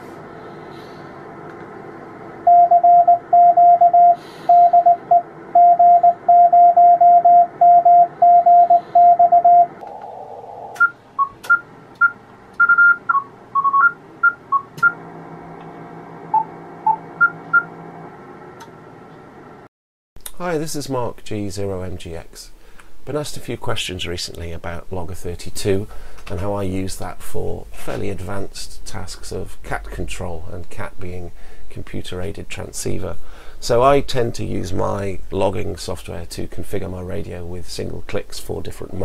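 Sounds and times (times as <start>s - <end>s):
morse code tone: 2.5s - 9.8s, 10.7s - 15.0s
alternating higher beeps: 2.5s - 15.0s.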